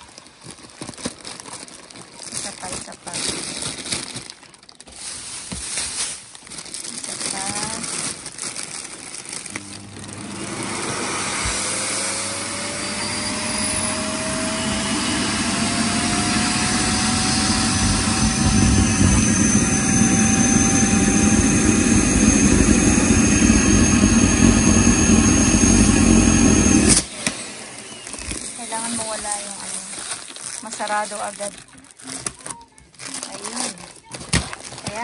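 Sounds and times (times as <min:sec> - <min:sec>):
vacuum cleaner motor whine: 0:09.5 - 0:29.4.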